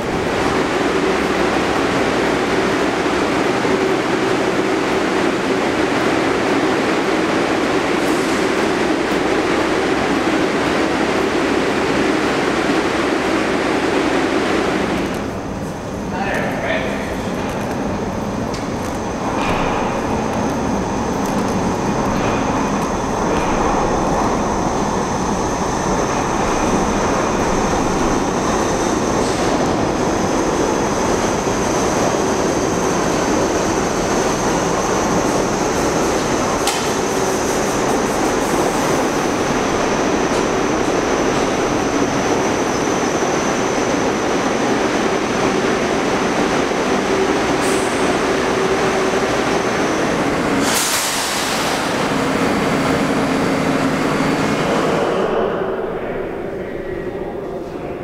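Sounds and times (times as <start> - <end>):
subway train rumbling: 0.0 - 58.0
loud air hiss: 50.5 - 52.3.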